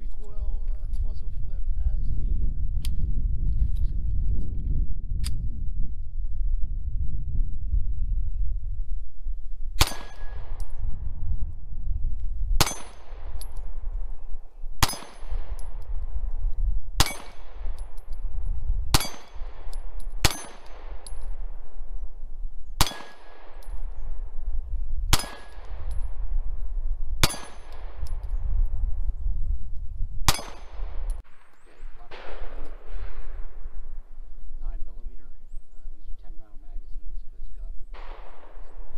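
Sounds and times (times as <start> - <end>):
pistol shots with echo: 9.8 - 11.1, 12.6 - 22.1, 22.8 - 24.4, 25.1 - 26.4, 27.2 - 28.4, 30.2 - 34.2, 37.9 - 38.9.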